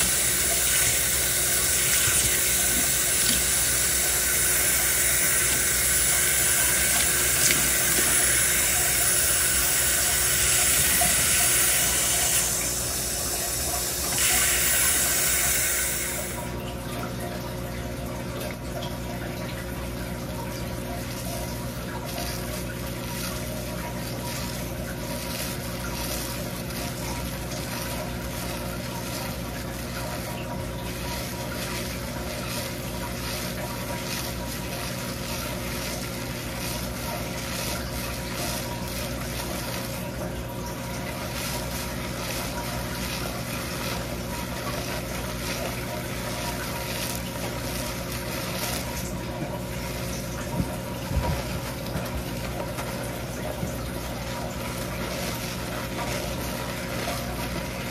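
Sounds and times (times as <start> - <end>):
fingers rubbing wet hair: 0.0 - 16.4
water running into a steel sink: 0.0 - 57.9.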